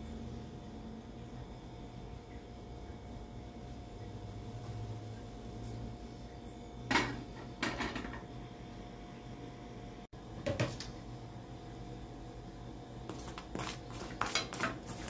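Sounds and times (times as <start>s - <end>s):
steady low hum: 0.0s - 15.0s
cookware clattering on a griddle: 6.9s - 8.3s.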